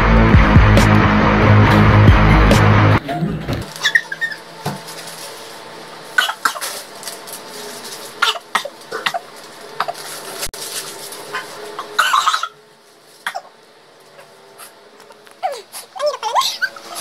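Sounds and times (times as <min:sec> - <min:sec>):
music: 0:00.0 - 0:03.7
woman coughing: 0:06.2 - 0:06.7, 0:11.8 - 0:12.6
tissue rustling: 0:08.8 - 0:11.8.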